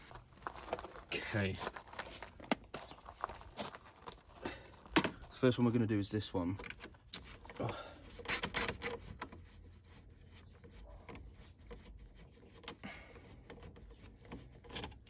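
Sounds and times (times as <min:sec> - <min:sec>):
bolt scraping while unscrewed: 0:08.2 - 0:09.6, 0:11.0 - 0:15.0.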